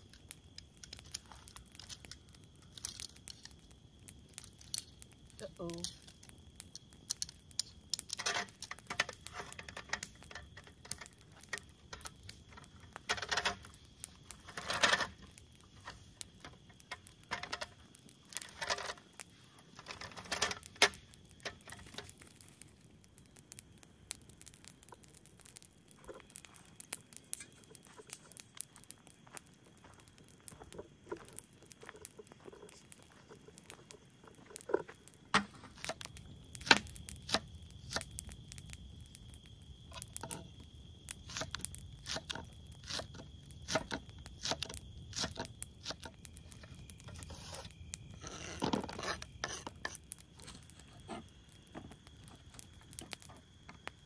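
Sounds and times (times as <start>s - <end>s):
crinkling rustles: 7.1s - 22.9s, 24.2s - 36.6s.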